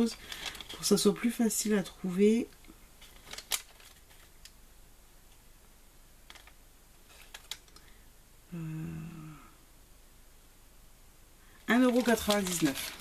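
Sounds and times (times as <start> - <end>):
small objects clicking: 6.3 - 7.9.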